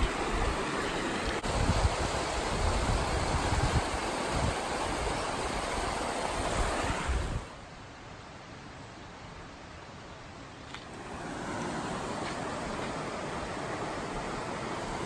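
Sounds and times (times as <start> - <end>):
fast water rushing: 0.0 - 7.6, 10.9 - 15.0
outdoor hiss: 0.0 - 15.0.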